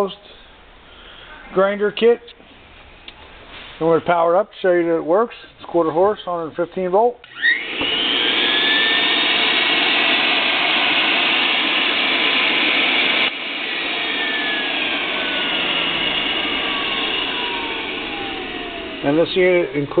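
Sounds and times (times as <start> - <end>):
electric motor whine: 7.3 - 20.0.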